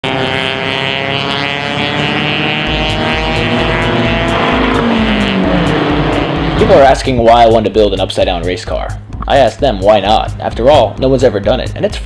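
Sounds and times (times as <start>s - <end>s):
race car engines passing: 0.0s - 7.7s
steady low beat: 0.9s - 12.0s.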